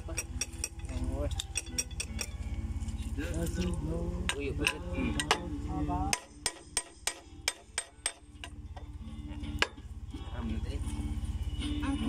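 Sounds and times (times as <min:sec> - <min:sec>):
hammer striking steel: 0:00.0 - 0:02.3, 0:04.3 - 0:05.5, 0:06.1 - 0:08.6, 0:09.6 - 0:09.8
engine throbbing: 0:00.0 - 0:06.8.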